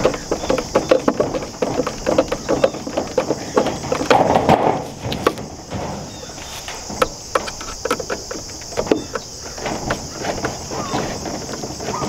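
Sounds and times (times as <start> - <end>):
plastic parts clicking and knocking: 0.0 - 12.0
rustling: 0.0 - 12.0.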